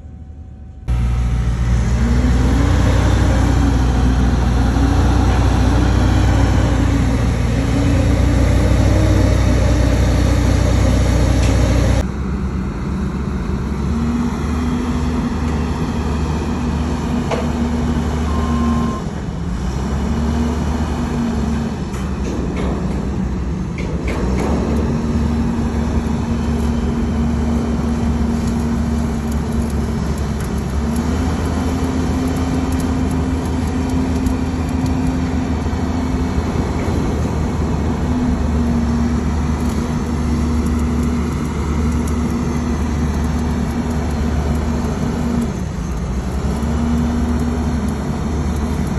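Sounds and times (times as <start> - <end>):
engine running with low drone: 0.0 - 48.9.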